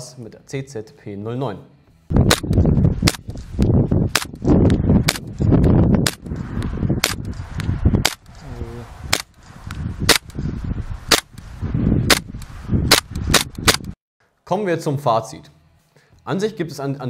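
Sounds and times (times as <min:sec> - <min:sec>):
wind rumble on microphone: 0:02.1 - 0:14.0
airsoft pistol shots cracking: 0:02.2 - 0:03.3, 0:04.1 - 0:04.4, 0:11.1 - 0:11.3, 0:12.9 - 0:13.9.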